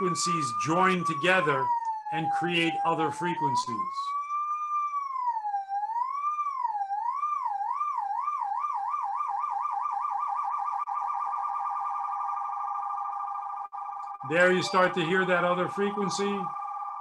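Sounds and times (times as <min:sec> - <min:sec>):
synthesizer tone warbling like siren: 0:00.0 - 0:17.0.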